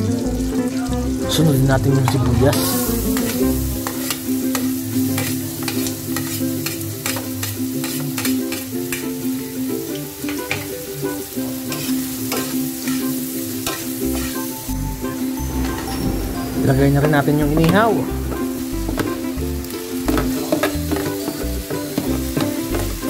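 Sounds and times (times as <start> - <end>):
onion sizzling in butter: 0.0 - 23.0
metal utensil scraping pan: 2.1 - 9.0, 10.3 - 10.7, 11.7 - 14.7, 15.5 - 22.9.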